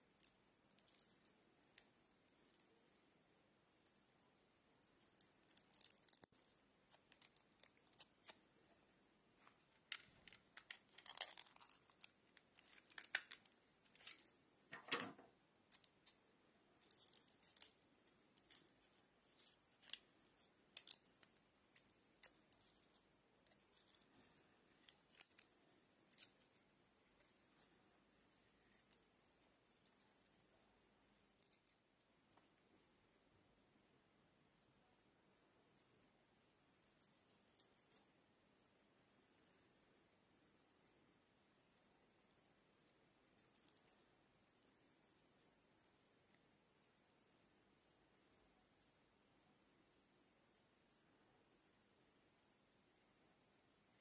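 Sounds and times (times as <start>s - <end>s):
foil crinkling and wire ticks: 5.0s - 8.4s, 9.7s - 14.3s, 18.4s - 25.5s.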